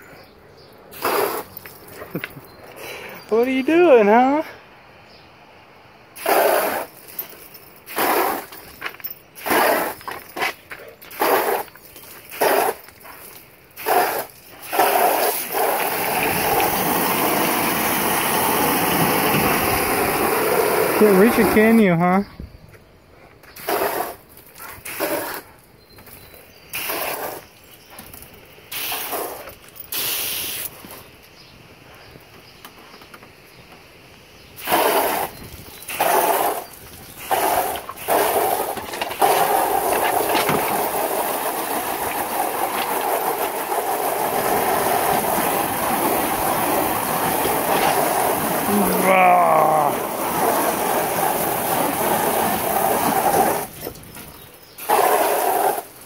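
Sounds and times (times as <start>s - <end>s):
hose spraying water: 0.9s - 1.7s, 6.2s - 8.6s, 9.4s - 22.1s, 23.5s - 25.5s, 26.7s - 31.2s, 34.6s - 56.0s.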